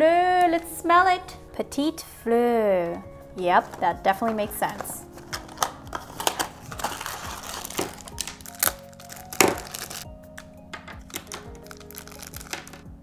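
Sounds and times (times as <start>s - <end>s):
background music: 0.0s - 13.0s
packaging crinkling and rustling: 3.6s - 12.9s.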